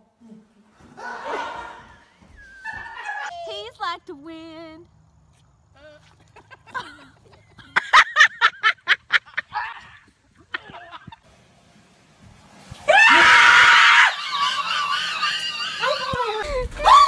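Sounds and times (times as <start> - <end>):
person screaming: 12.9 - 14.2.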